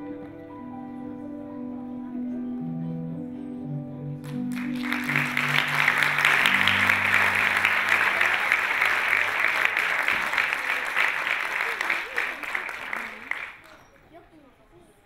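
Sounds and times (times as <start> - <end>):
audience applause: 4.2 - 13.8.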